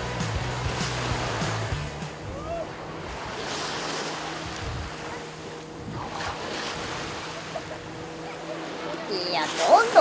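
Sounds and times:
distant boat engines droning: 0.0 - 10.0
small waves washing ashore: 0.0 - 10.0
wind on microphone: 2.2 - 8.2.

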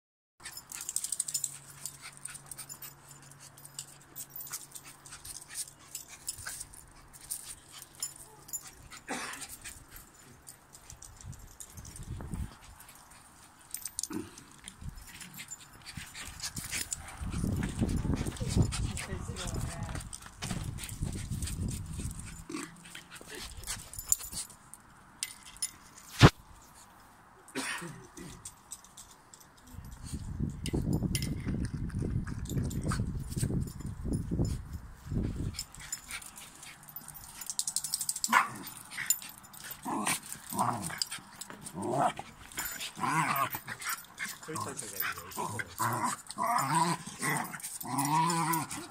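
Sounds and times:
dogs scrabbling on paving: 3.6 - 24.5
small dogs growling: 22.4 - 23.4, 39.7 - 48.9.

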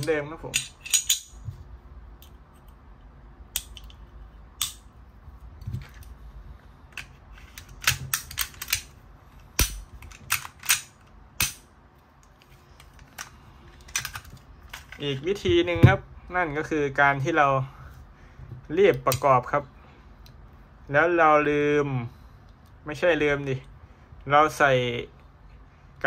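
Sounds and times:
pistol parts clicking: 0.5 - 1.4, 3.5 - 4.9, 6.9 - 15.0.

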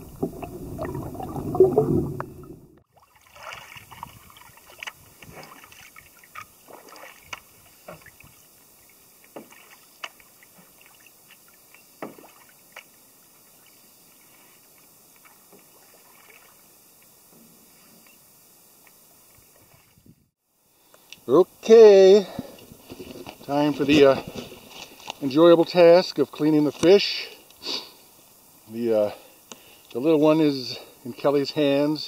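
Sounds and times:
water gurgle: 0.0 - 7.4
paddle splashing water: 0.0 - 17.1.

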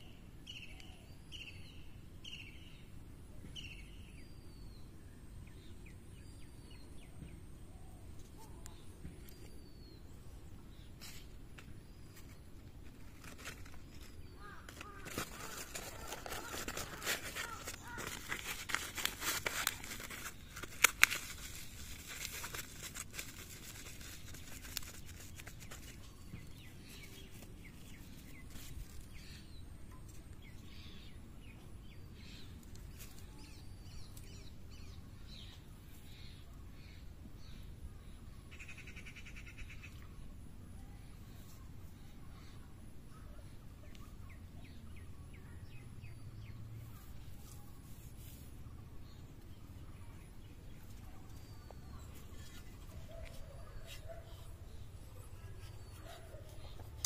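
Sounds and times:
bird chirping: 0.0 - 40.4, 41.0 - 57.0
rustling handling noise: 10.8 - 30.5, 46.8 - 57.0.

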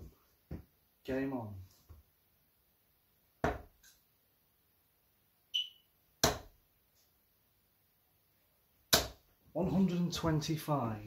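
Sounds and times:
darts thudding into dartboard: 3.4 - 3.8, 6.2 - 6.6.

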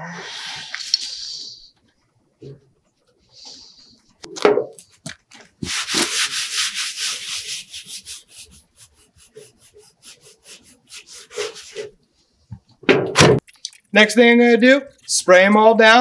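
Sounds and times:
cloth rag scrubbing metal: 5.5 - 12.0.

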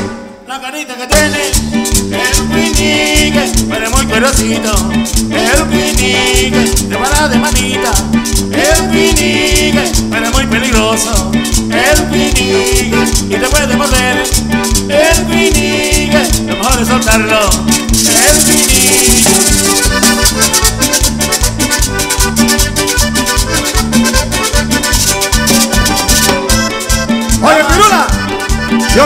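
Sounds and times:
bass: 0.0 - 0.4, 1.1 - 29.0
electric guitar: 0.0 - 0.5, 1.1 - 29.0
drums: 0.0 - 29.0
accordion: 1.0 - 29.0
shaker rattle: 17.8 - 20.2.

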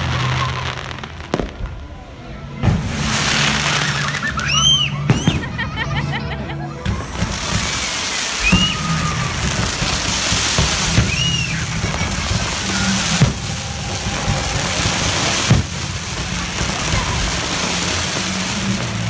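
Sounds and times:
fireworks booms: 0.0 - 1.9, 2.6 - 5.7, 6.8 - 19.0
music: 0.0 - 11.0
fireworks crackling: 0.0 - 19.0.

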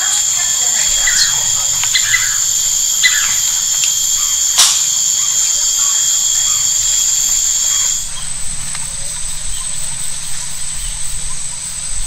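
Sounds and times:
bird chirps: 0.0 - 8.3
high-pitched insect whine: 0.0 - 12.0.

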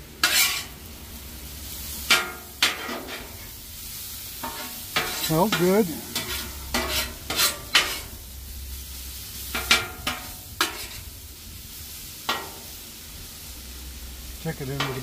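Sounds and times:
meat sizzling: 0.0 - 15.0
metal spatula scraping griddle: 0.2 - 0.9, 1.9 - 3.6, 4.3 - 11.2, 11.8 - 12.7.

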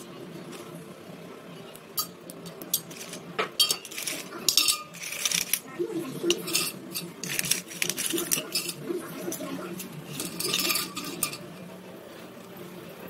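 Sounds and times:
pencils clinking in steel pot: 2.0 - 11.6.

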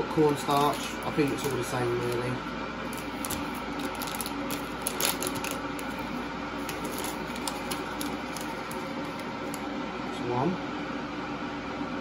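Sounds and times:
electrical hum: 0.0 - 12.0.

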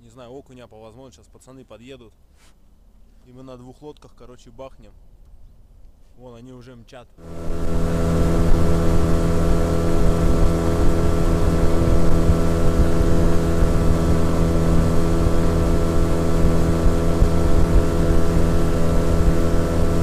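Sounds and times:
outboard motor running: 7.2 - 20.0
water and air rushing: 7.2 - 20.0.

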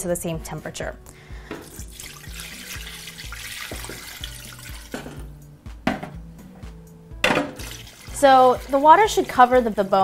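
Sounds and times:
background music with bass: 0.0 - 10.0
water pouring into a pot: 1.6 - 5.0, 7.6 - 10.0.

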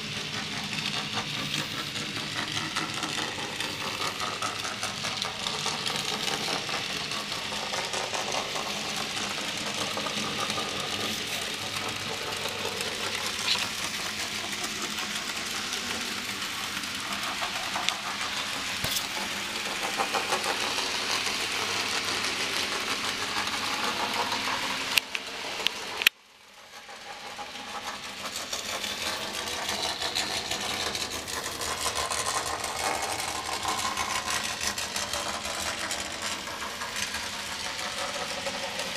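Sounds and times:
model train whirring and clicking: 0.0 - 38.9.

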